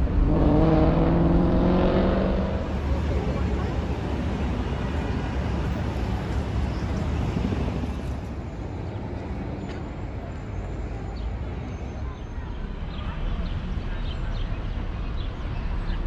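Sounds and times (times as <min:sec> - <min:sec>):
city traffic rumble: 0:00.0 - 0:16.0.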